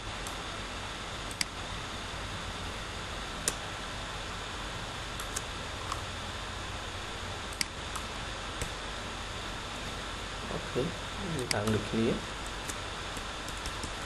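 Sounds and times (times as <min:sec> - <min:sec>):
low room hum: 0:00.0 - 0:14.0
microphone hiss: 0:00.0 - 0:14.0
computer mouse clicking: 0:01.3 - 0:01.6, 0:05.2 - 0:06.0, 0:07.5 - 0:08.8, 0:11.4 - 0:14.0.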